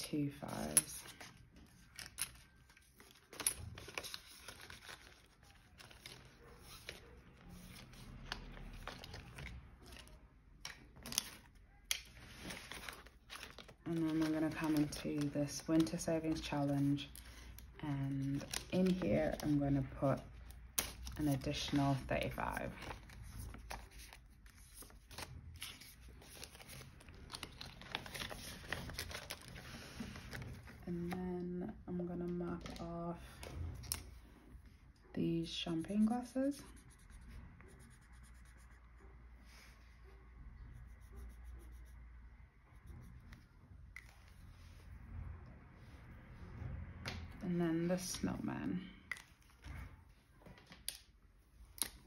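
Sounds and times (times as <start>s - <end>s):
paper rustling and crinkling: 0.4s - 31.2s.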